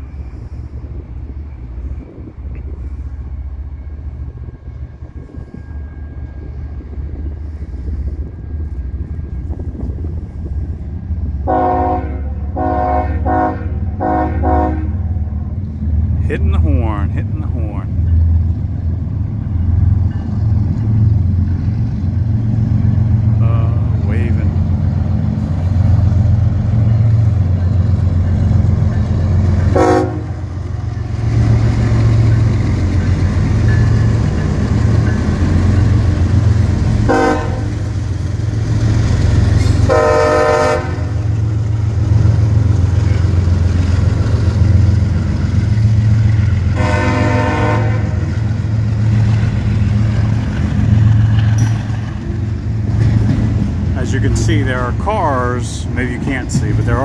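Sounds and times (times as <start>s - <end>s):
diesel locomotive rumble: 0.0s - 57.0s
freight cars rolling past: 0.0s - 57.0s
train air horn blasts: 11.4s - 15.0s, 29.7s - 30.5s, 37.0s - 37.9s, 39.8s - 41.2s, 46.7s - 48.3s.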